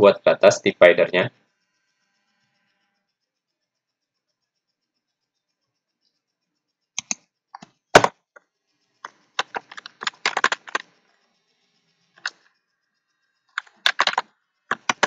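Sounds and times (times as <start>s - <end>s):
computer keyboard typing: 7.0s - 7.7s, 9.4s - 10.8s, 13.6s - 15.0s.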